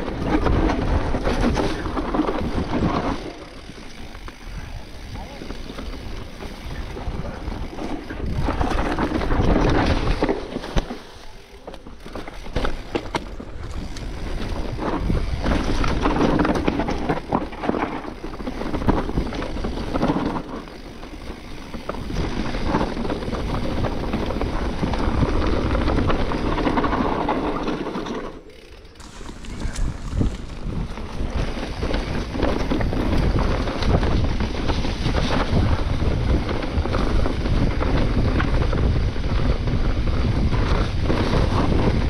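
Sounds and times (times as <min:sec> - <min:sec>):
wind rushing over microphone: 0:00.0 - 0:11.0, 0:13.1 - 0:27.8, 0:29.0 - 0:42.0
bike rattling and knocking: 0:00.0 - 0:42.0
tyres rumbling over dirt and rocks: 0:00.0 - 0:42.0.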